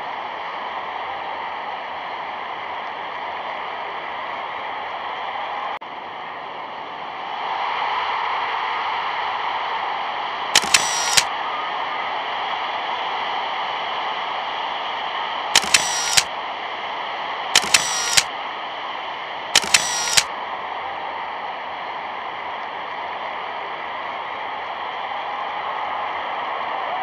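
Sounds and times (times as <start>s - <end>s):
sharp clicks: 10.6s - 11.3s, 15.6s - 16.3s, 17.6s - 18.3s, 19.6s - 20.3s.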